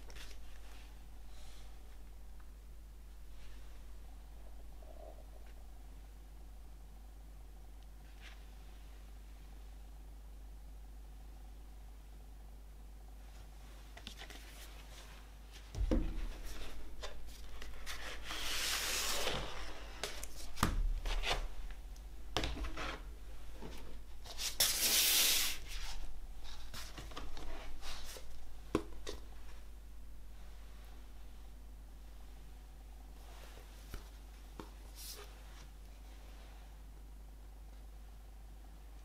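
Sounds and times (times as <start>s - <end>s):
paper rustling slides: 15.9s - 21.8s, 22.4s - 28.4s
paper and card rubbing: 16.2s - 20.2s.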